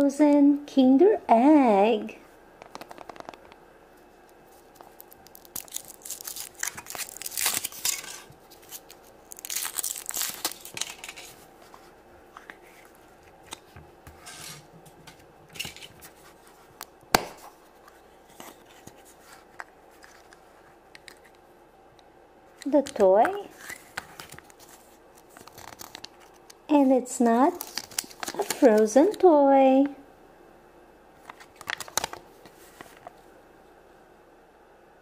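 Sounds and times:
plastic capsule snapping: 0:02.6 - 0:03.6
foil wrapper crinkling and tearing: 0:04.5 - 0:11.4, 0:23.5 - 0:26.6, 0:27.4 - 0:29.2, 0:31.2 - 0:32.3.

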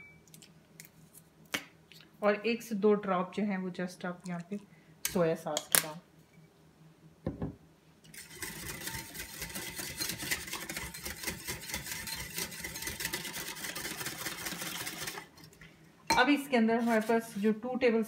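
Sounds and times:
knock: 0:07.3 - 0:07.6
whisk beating batter in a bowl: 0:08.1 - 0:15.4, 0:16.7 - 0:17.6.

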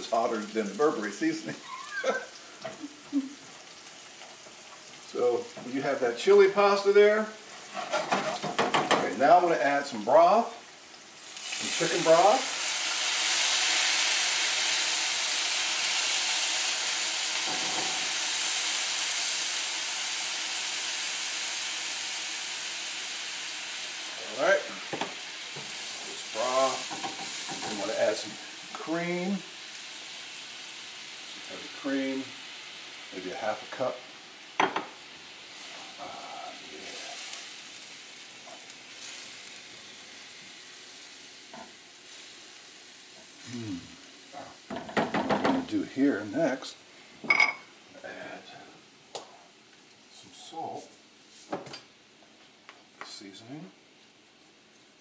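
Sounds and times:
liquid sizzling in hot skillet: 0:00.0 - 0:55.0
spatula scraping a skillet: 0:07.6 - 0:08.6.

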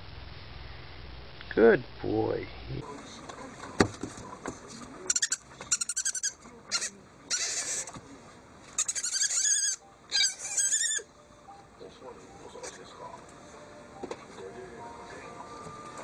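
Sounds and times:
owl chittering squeaky calls: 0:05.1 - 0:07.9, 0:08.8 - 0:11.1
owl hissing: 0:06.7 - 0:08.0.

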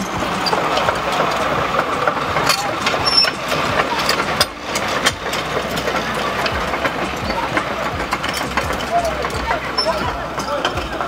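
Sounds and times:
engine idling: 0:00.0 - 0:11.0
street noise: 0:00.0 - 0:11.0.

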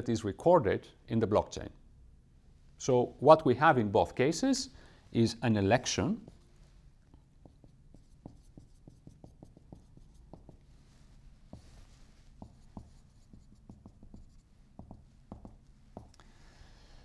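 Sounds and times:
marker strokes hissing on whiteboard: 0:05.8 - 0:16.2
marker tapping on whiteboard: 0:07.4 - 0:10.7, 0:12.4 - 0:16.2.

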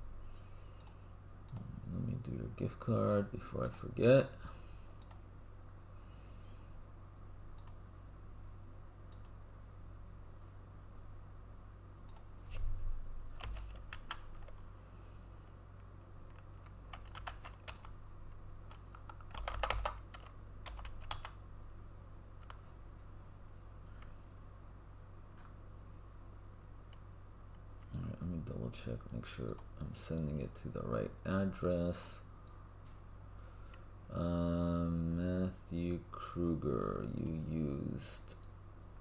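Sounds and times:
steady low hum: 0:00.0 - 0:39.0
computer keyboard typing: 0:13.4 - 0:14.6, 0:16.3 - 0:18.0, 0:18.7 - 0:21.4.

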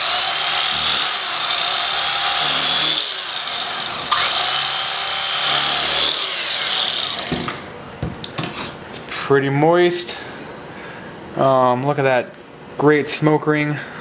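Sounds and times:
electric carving knife buzzing: 0:00.0 - 0:07.6.

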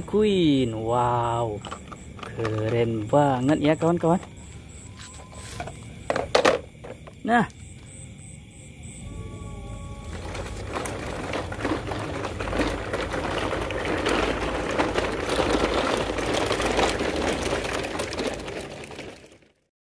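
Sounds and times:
toy truck wheels crunching gravel: 0:01.4 - 0:07.1, 0:09.8 - 0:19.7.

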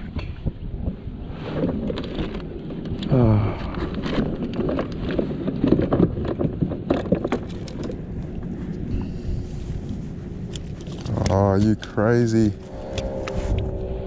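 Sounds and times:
wind on microphone: 0:00.0 - 0:14.0
person's voice: 0:11.1 - 0:12.6.

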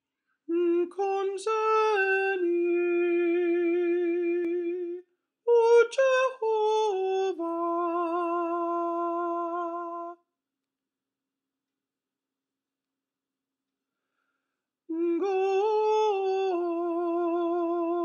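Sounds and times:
alto voice singing: 0:00.5 - 0:10.2, 0:14.9 - 0:18.0.

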